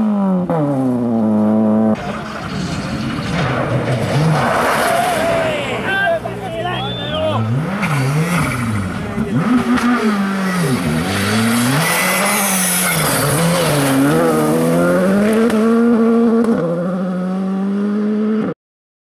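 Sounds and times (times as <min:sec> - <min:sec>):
rally car engine revving: 0:00.0 - 0:18.5.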